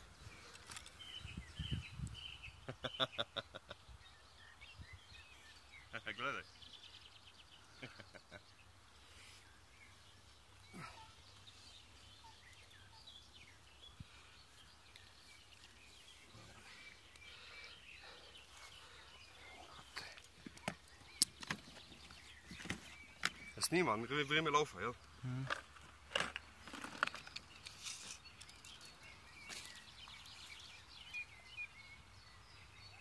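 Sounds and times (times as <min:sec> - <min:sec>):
faint bird calls: 0:09.0 - 0:23.7.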